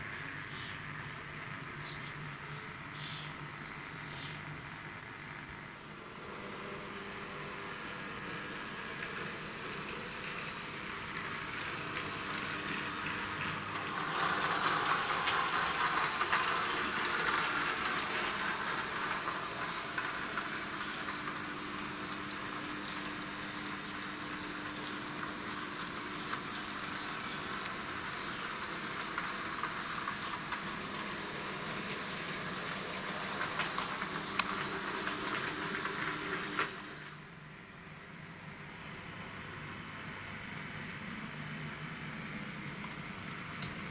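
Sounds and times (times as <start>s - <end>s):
model trams whirring on track: 0.0s - 43.9s.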